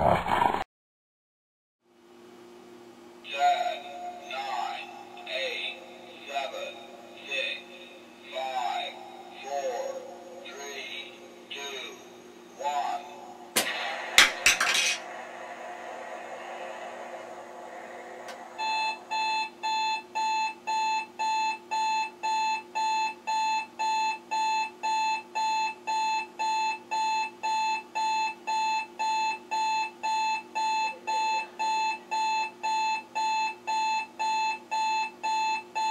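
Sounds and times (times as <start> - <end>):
alarm clock electronic beeping: 18.6 - 35.9.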